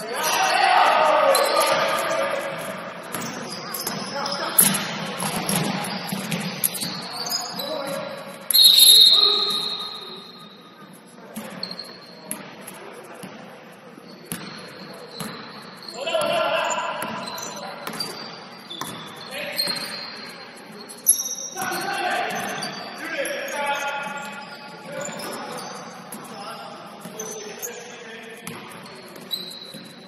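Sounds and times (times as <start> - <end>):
players' voices: 0.0 - 11.5, 15.8 - 18.1, 19.2 - 29.5
basketball bouncing on court: 3.0 - 7.0, 14.3 - 15.6, 17.0 - 19.9, 28.4 - 29.9
shrill whistle blast: 8.5 - 10.4.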